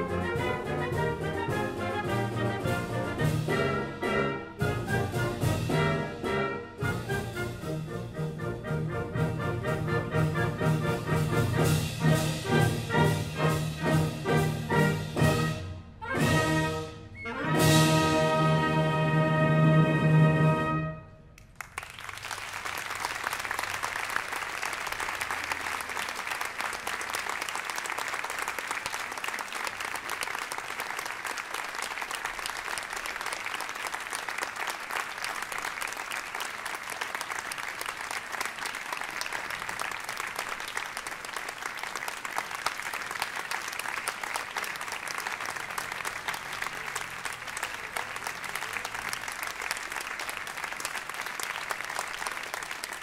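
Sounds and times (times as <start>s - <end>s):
music: 0.0s - 21.4s
audience applauding: 21.4s - 53.0s.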